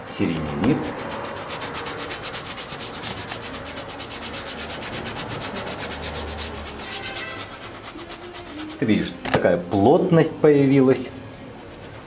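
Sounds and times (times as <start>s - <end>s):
paintbrush scrubbing on canvas: 0.7s - 9.2s, 11.5s - 12.0s.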